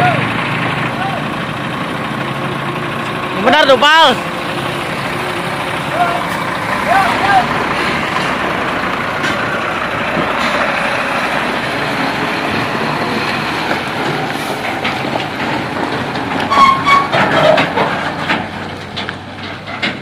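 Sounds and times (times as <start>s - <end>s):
truck engine running: 0.0s - 20.0s
metal clanks: 13.7s - 20.0s.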